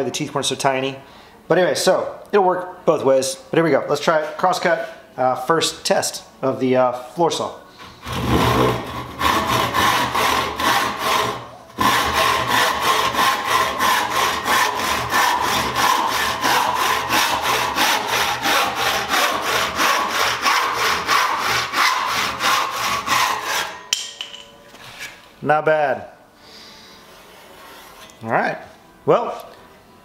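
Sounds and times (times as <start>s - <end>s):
hand saw cutting a board: 8.0s - 23.8s.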